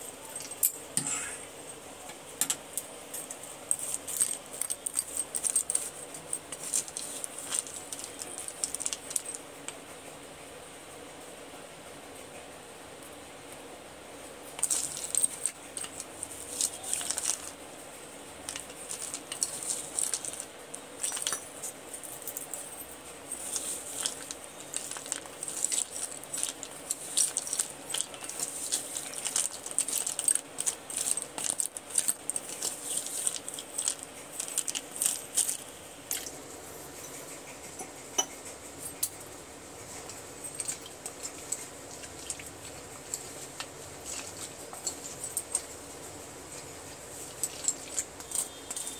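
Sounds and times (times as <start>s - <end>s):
metal spoon stirring pencil sticks: 3.1s - 9.4s, 14.6s - 17.6s, 18.3s - 36.4s, 39.9s - 48.9s
pencil sticks clinking together: 14.6s - 17.6s, 18.4s - 22.8s, 23.4s - 36.3s, 47.3s - 48.9s.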